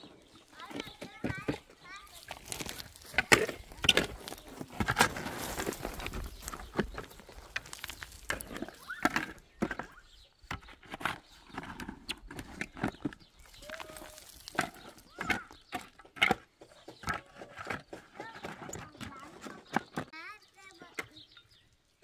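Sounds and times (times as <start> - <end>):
shovel striking gravelly soil: 0.6 - 9.4, 12.5 - 15.7.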